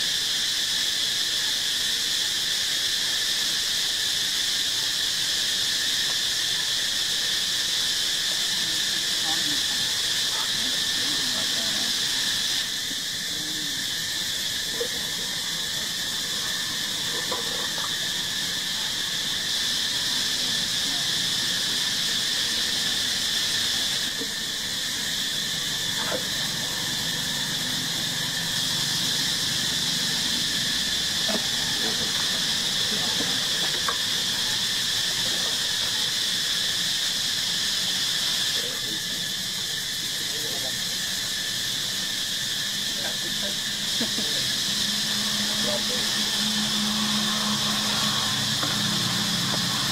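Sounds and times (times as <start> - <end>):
high-pitched insect chorus: 0.0 - 49.9.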